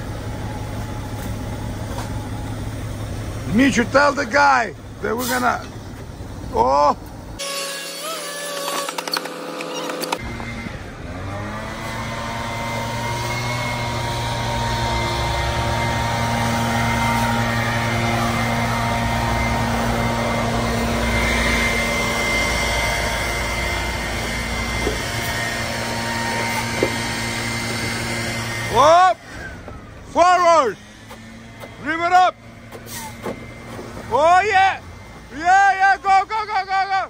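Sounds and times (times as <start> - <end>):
truck engine revving: 0.0 - 7.4, 8.0 - 37.0
high whine: 12.3 - 30.8.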